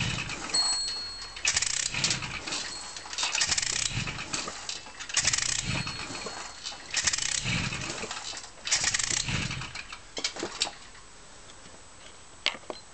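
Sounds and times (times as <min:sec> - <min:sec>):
moped engine turning over: 0:00.0 - 0:11.1
sharp clicks: 0:01.3 - 0:06.0, 0:06.6 - 0:10.8.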